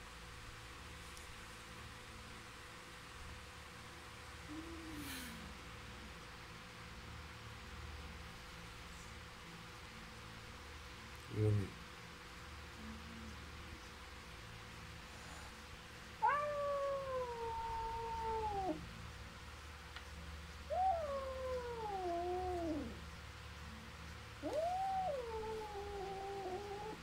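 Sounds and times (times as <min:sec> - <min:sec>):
cat yowling: 0:16.2 - 0:18.8, 0:20.7 - 0:23.0, 0:24.4 - 0:27.0.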